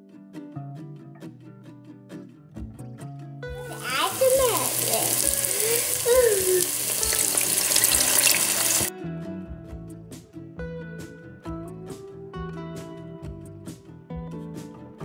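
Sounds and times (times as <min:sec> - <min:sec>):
liquid sizzling in hot oil: 0:03.6 - 0:08.9.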